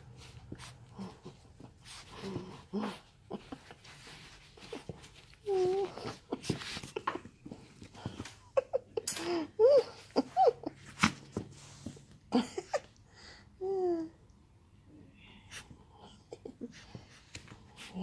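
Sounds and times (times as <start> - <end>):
dog whining: 4.7 - 8.2.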